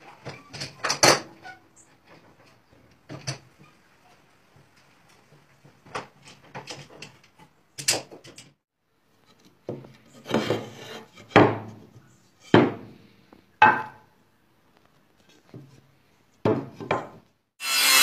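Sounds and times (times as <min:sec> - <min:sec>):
wooden boards sliding and rubbing: 0:09.7 - 0:12.1.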